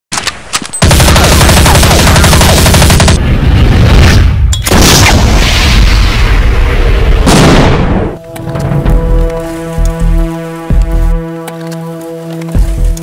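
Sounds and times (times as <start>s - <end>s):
rapid automatic gunfire: 0.8s - 3.2s.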